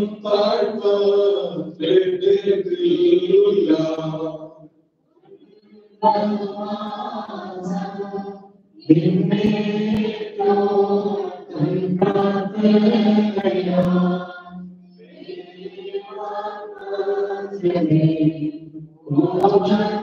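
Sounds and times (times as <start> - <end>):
voices singing a liturgical chant: 0.0 - 20.0.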